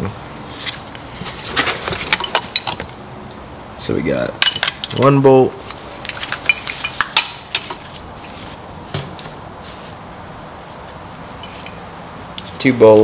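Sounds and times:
seat belt metal hardware clinking: 2.0 - 3.0, 6.1 - 7.8, 11.4 - 11.8.

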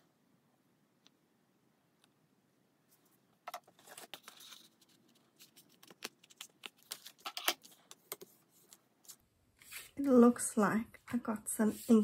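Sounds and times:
cardstock rustling: 3.5 - 10.0.

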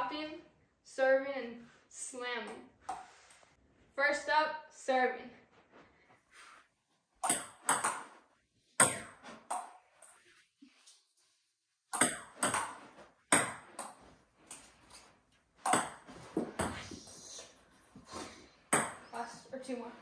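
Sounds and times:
ball bouncing on table: 7.2 - 8.2, 8.8 - 9.8, 11.9 - 14.6, 15.6 - 16.9, 18.7 - 19.0
paddle hitting ball: 7.2 - 8.2, 11.9 - 14.1, 15.6 - 16.9.

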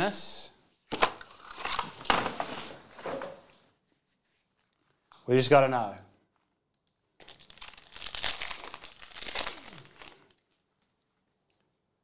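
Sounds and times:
foil wrapper tearing and crinkling: 1.3 - 2.6, 7.2 - 10.5.

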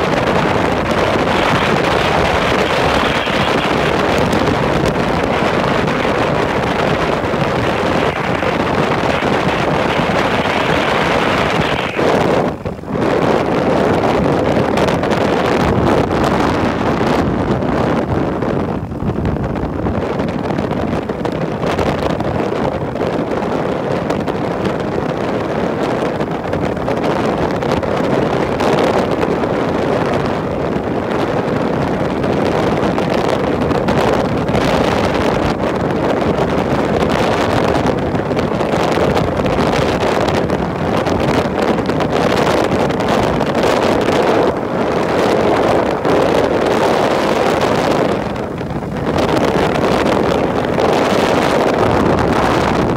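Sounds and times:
road noise: 0.0 - 14.4
wind rushing over microphone: 0.0 - 52.9.

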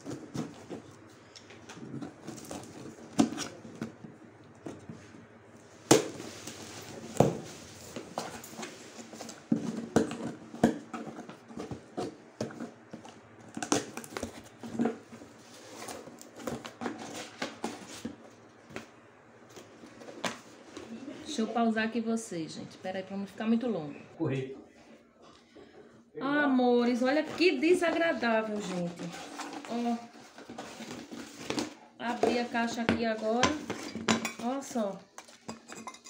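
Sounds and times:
cardboard rustling and tearing: 1.6 - 4.0, 5.9 - 18.3, 28.0 - 31.8.

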